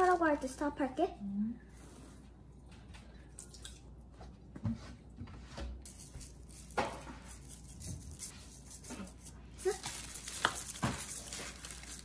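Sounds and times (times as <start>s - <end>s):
spice shaker taps and rattles: 5.9s - 12.0s.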